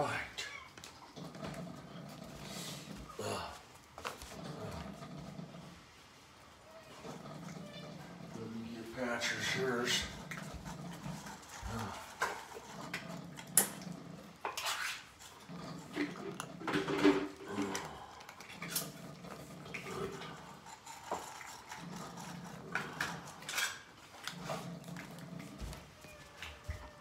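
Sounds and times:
cats chewing wetly: 0:09.2 - 0:27.0
bowls clicking and knocking: 0:09.9 - 0:25.6.

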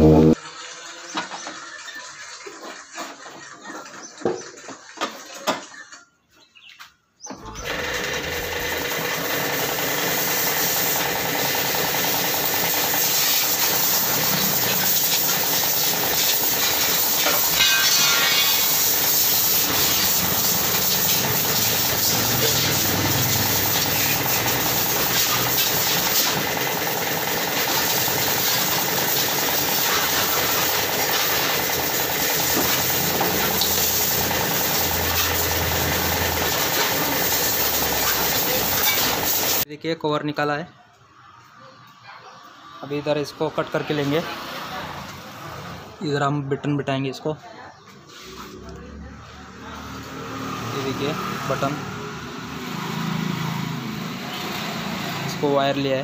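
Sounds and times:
machine running with hiss: 0:08.7 - 0:39.6.

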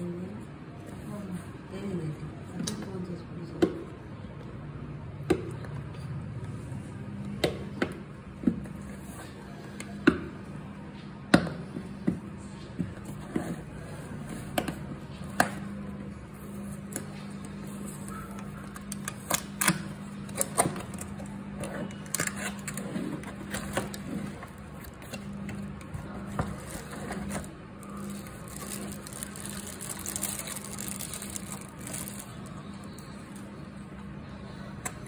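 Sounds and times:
steady low hum: 0:00.0 - 0:35.0
packaging rustling and scraping: 0:20.4 - 0:33.1.

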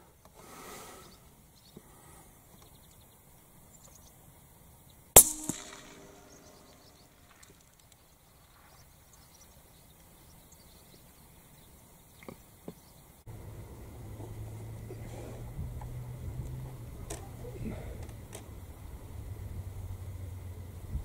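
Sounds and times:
rifle shot: 0:05.2 - 0:07.5
smaller crack: 0:05.2 - 0:08.0.

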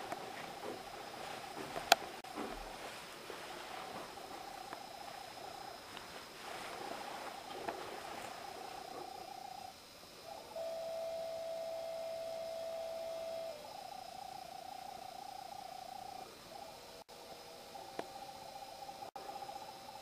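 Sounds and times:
wavering sustained tone: 0:03.6 - 0:20.0.

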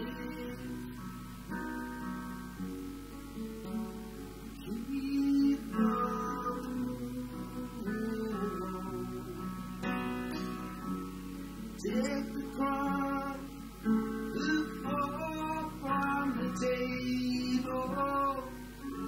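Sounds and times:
man singing: 0:00.0 - 0:01.0, 0:04.6 - 0:10.8, 0:11.8 - 0:19.0
acoustic guitar strumming: 0:00.0 - 0:19.0
digital piano: 0:00.0 - 0:19.0.

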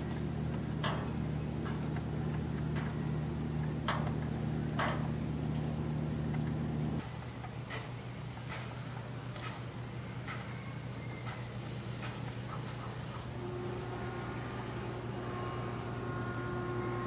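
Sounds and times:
boat engine drone: 0:00.0 - 0:07.0, 0:13.3 - 0:17.0.

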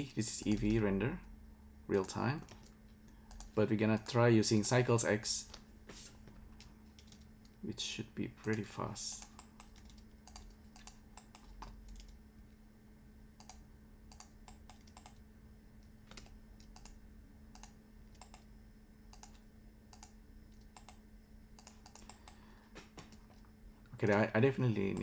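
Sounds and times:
steady low hum: 0:00.0 - 0:25.0
keyboard and mouse clicks: 0:02.0 - 0:04.2, 0:08.4 - 0:12.2, 0:13.4 - 0:15.2, 0:16.1 - 0:17.0, 0:17.6 - 0:18.5, 0:19.1 - 0:21.0, 0:21.6 - 0:23.4.

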